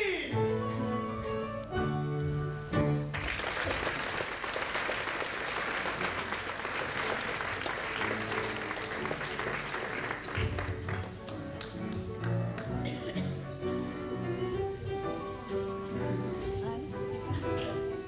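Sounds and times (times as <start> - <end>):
audience applauding: 3.1 - 13.2.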